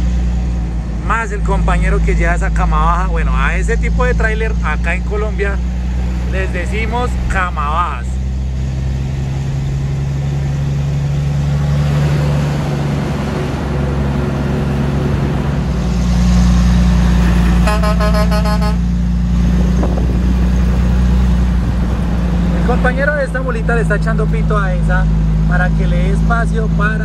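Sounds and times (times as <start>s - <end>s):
diesel truck engine running: 0.0s - 27.0s
truck horn honking: 17.4s - 19.0s.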